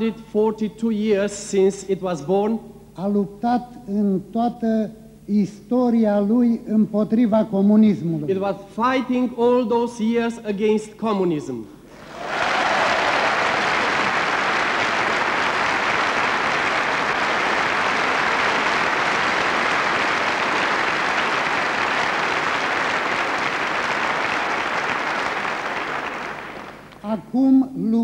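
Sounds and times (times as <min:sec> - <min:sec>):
audience applauding: 0:11.9 - 0:27.0.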